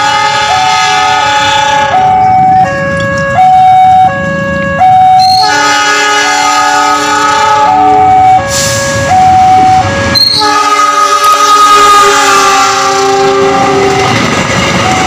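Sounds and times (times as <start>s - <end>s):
locomotive horn blasts: 0.0s - 15.0s
rumble of passing train: 0.0s - 15.0s.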